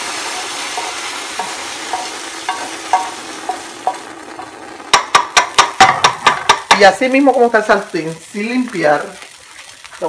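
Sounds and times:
utensil scraping frying pan: 0:00.0 - 0:07.0
sizzle: 0:00.0 - 0:10.0.

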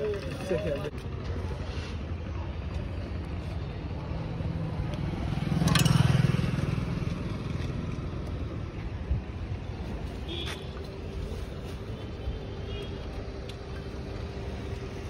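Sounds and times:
road traffic hum: 0:00.0 - 0:15.0.

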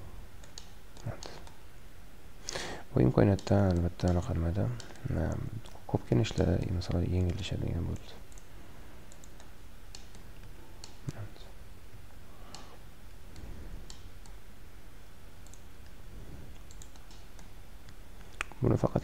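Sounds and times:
low room hum: 0:00.0 - 0:19.0
mouse and keyboard clicks: 0:00.4 - 0:01.6, 0:09.1 - 0:11.2, 0:16.6 - 0:18.6.

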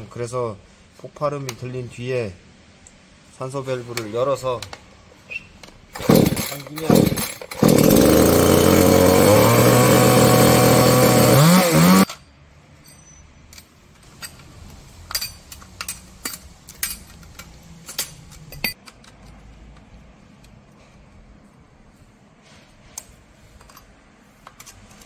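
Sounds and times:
chainsaw engine revving: 0:06.0 - 0:12.1.

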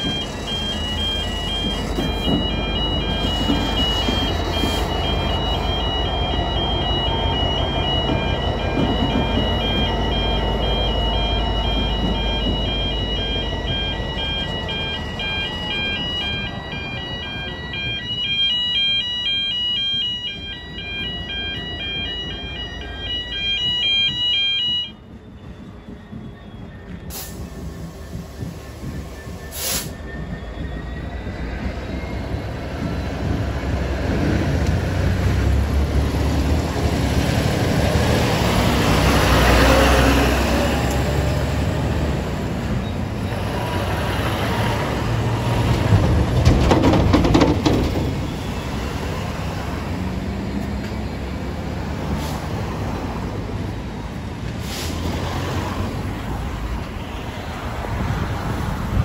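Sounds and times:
level crossing warning alarm: 0:00.0 - 0:54.3
diesel locomotive engine rumble: 0:00.0 - 0:59.0.

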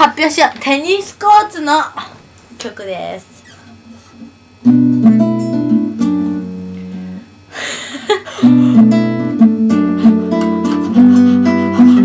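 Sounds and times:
acoustic guitar chords: 0:04.6 - 0:07.4, 0:08.2 - 0:12.0.

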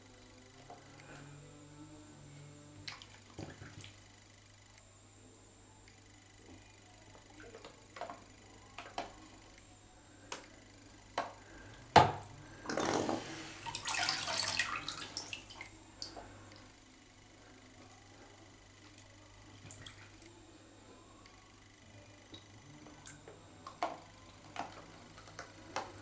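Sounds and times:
bathtub water splashing: 0:02.8 - 0:04.0, 0:12.6 - 0:16.2, 0:19.6 - 0:20.3.

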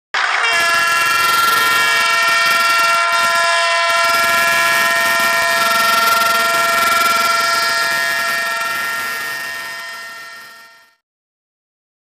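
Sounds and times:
train horn blast: 0:00.2 - 0:11.0.

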